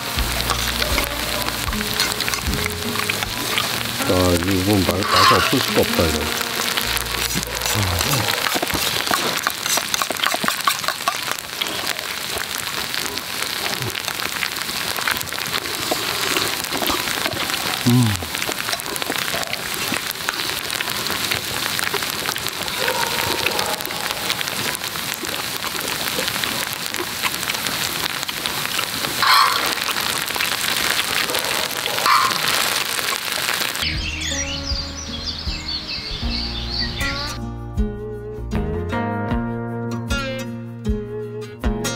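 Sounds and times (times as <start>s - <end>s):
fried rice sizzling: 0.0s - 37.4s.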